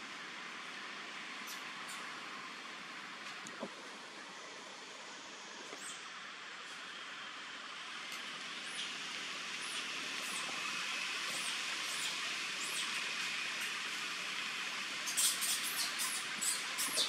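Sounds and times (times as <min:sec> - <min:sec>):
steady hiss: 0:00.0 - 0:17.0
small birds chirping: 0:09.6 - 0:13.0.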